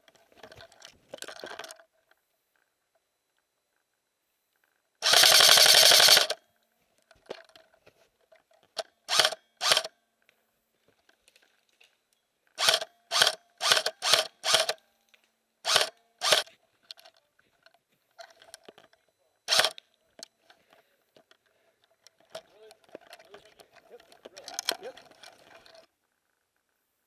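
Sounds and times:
airsoft gun full-auto burst: 0:05.0 - 0:06.4, 0:09.1 - 0:09.9, 0:12.6 - 0:14.8, 0:15.6 - 0:16.5, 0:19.5 - 0:19.8.

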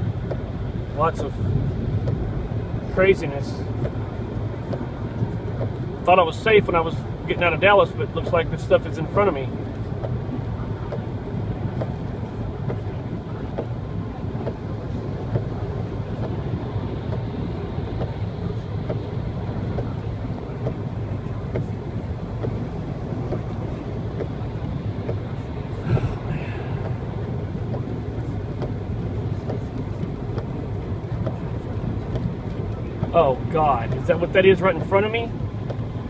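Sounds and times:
car driving on wet road: 0:00.0 - 0:36.0
rain ticking on windshield: 0:00.0 - 0:36.0.

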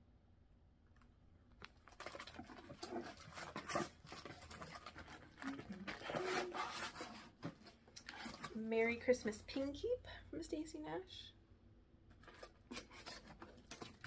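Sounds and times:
plastic-sleeved paper rustling: 0:01.6 - 0:09.2, 0:12.1 - 0:14.0
cardboard box rummaging: 0:01.9 - 0:08.6.

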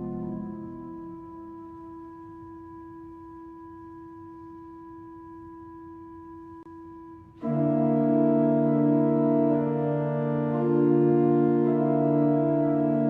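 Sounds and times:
loud full organ chord: 0:00.0 - 0:02.3, 0:07.2 - 0:13.0
pipe organ note: 0:00.0 - 0:13.0.

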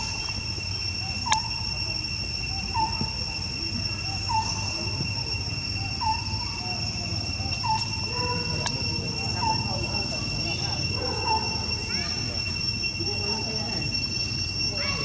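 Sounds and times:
high-pitched insect drone: 0:00.0 - 0:15.0
short chirping call: 0:02.5 - 0:04.9, 0:05.8 - 0:15.0.

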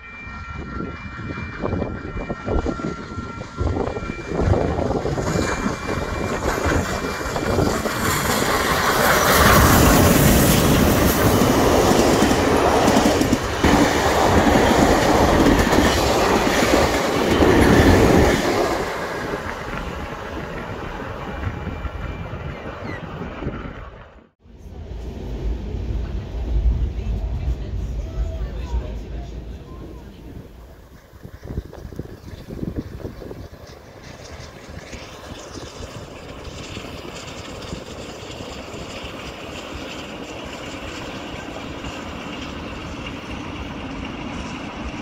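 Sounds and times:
train rumble: 0:00.0 - 0:45.0
train wheels clattering: 0:04.6 - 0:20.8.

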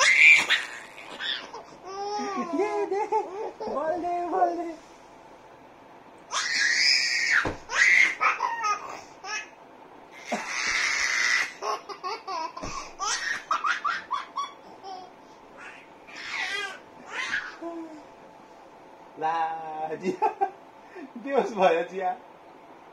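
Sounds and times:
baby high-pitched calls: 0:00.0 - 0:02.2, 0:06.3 - 0:09.5, 0:10.3 - 0:12.2, 0:13.0 - 0:17.6
baby laughing: 0:00.0 - 0:03.9, 0:06.3 - 0:09.5, 0:10.2 - 0:18.0.

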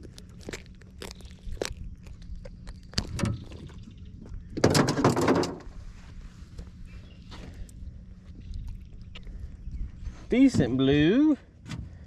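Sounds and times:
fish thrashing and knocking: 0:04.6 - 0:05.7
knocks and clicks in a boat: 0:04.6 - 0:05.7.

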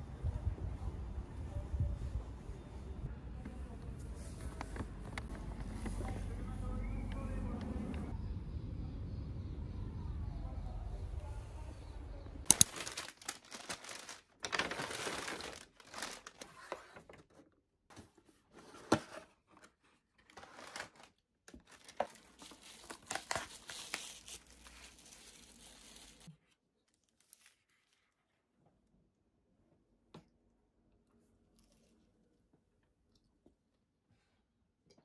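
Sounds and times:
low rumble: 0:00.0 - 0:12.4
paper crinkling and rustling: 0:12.4 - 0:28.4.

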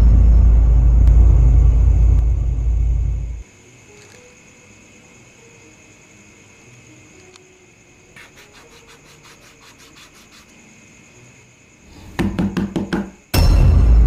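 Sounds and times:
faint hiss with high whine: 0:03.0 - 0:12.2
pencil scratching on paper: 0:08.2 - 0:10.5
loud knocks: 0:12.0 - 0:13.2.

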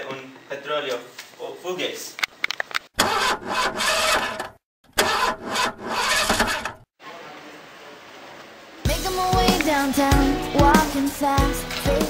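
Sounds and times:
rough rasping scrapes: 0:05.1 - 0:06.8.

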